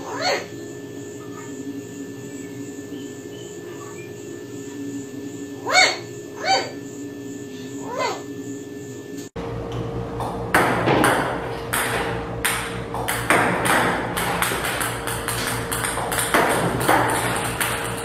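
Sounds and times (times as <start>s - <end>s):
ping-pong balls bouncing on table: 10.5s - 18.0s.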